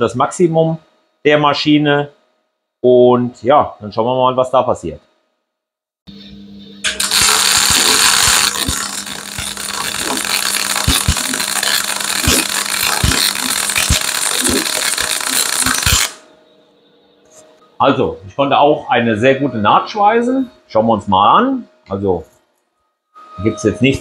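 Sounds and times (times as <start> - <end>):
welder humming: 6.8 - 16.4
welding arc crackling hiss: 6.9 - 16.2.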